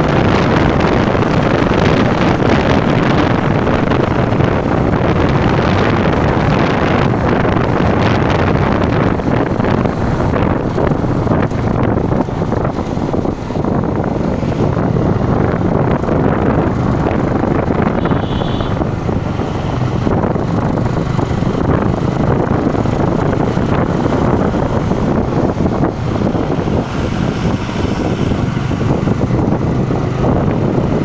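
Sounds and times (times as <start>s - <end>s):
motorcycle road and engine noise: 0.0s - 31.0s
wind rushing over microphone: 0.0s - 31.0s
brief high tone: 18.0s - 18.8s.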